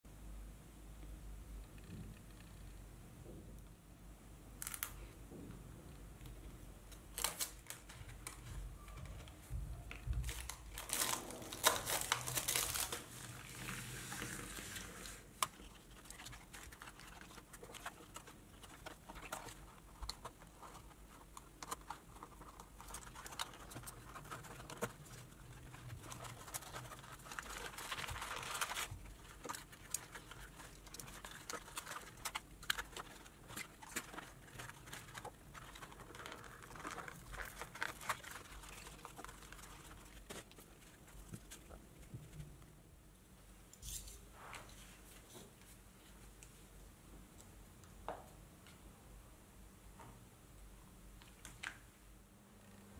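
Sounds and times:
cardboard pack crinkling and tearing: 0:07.1 - 0:08.4, 0:10.2 - 0:41.7.

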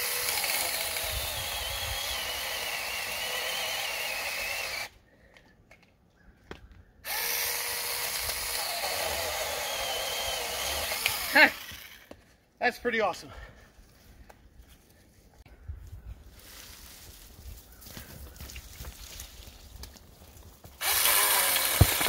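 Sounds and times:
electric chainsaw motor whirring: 0:00.0 - 0:04.9, 0:07.1 - 0:12.1, 0:20.8 - 0:22.0.

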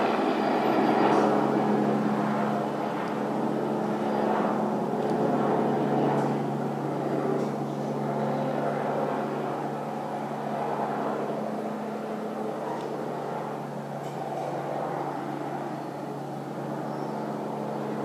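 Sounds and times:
helicopter droning overhead: 0:00.0 - 0:18.0.

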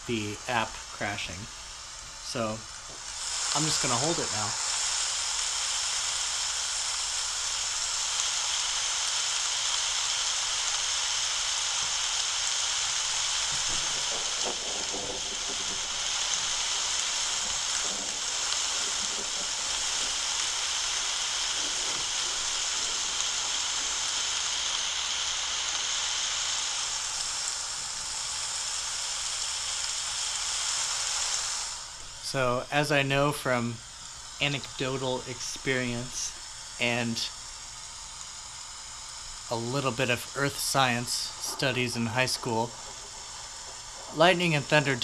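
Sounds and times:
rain hissing: 0:00.0 - 0:45.0
thunder rumble: 0:13.2 - 0:24.4.

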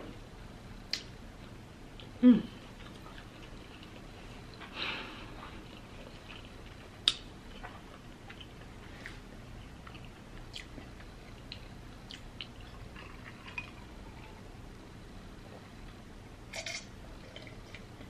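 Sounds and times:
person chewing: 0:02.0 - 0:14.4.

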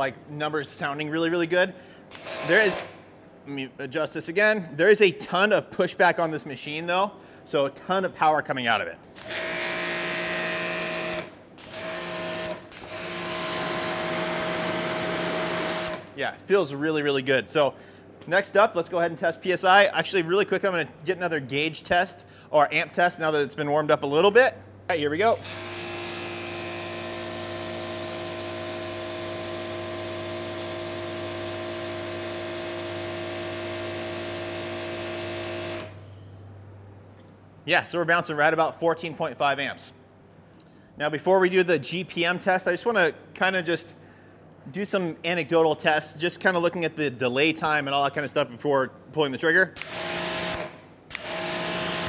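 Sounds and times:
pressure washer motor hum: 0:02.1 - 0:03.0, 0:09.2 - 0:16.2, 0:25.2 - 0:36.0, 0:49.8 - 0:52.0.

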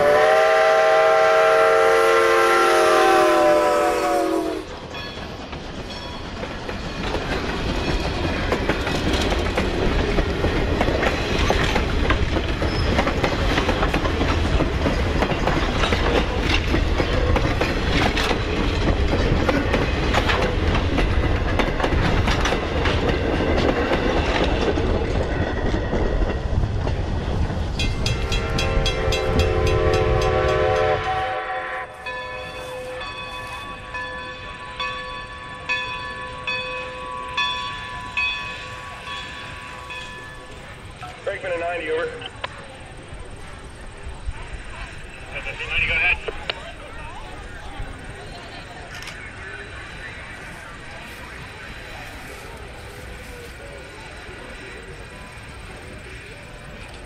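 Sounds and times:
steam locomotive whistle: 0:00.0 - 0:04.8, 0:28.1 - 0:33.7
train wheels clicking over rail joints: 0:04.7 - 0:31.2.

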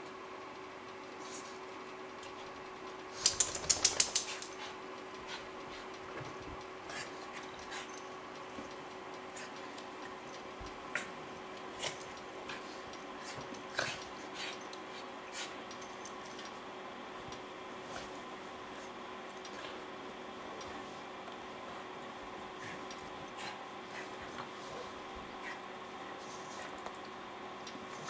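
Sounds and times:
dogs scuffling and clicking: 0:01.3 - 0:19.9.

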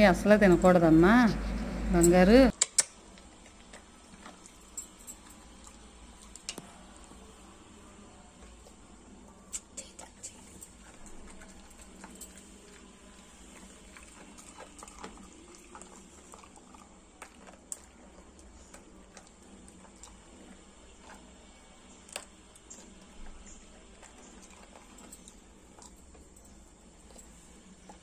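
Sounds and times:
low steady hum: 0:00.0 - 0:02.5
dog chewing leaves: 0:09.3 - 0:28.0.

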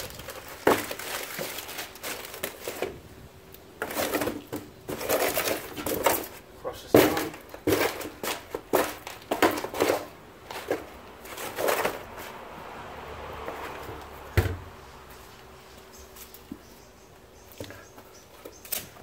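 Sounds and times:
cardboard and paper rustling: 0:00.0 - 0:03.2, 0:03.8 - 0:12.6.

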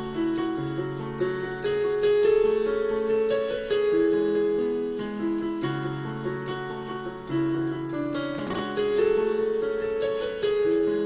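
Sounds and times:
piano music: 0:00.0 - 0:11.0.

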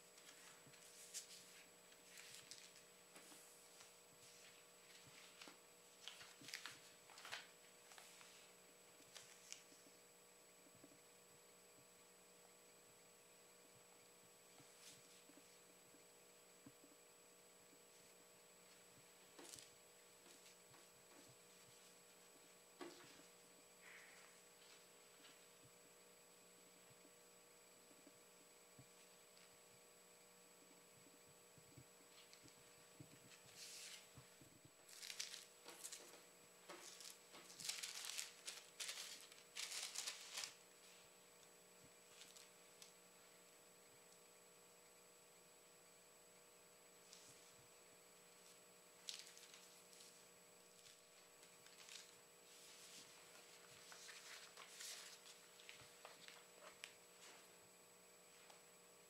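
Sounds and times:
paper napkins rustling: 0:00.1 - 0:09.8, 0:33.2 - 0:34.2, 0:34.8 - 0:41.1, 0:42.0 - 0:42.6, 0:48.4 - 0:57.5.

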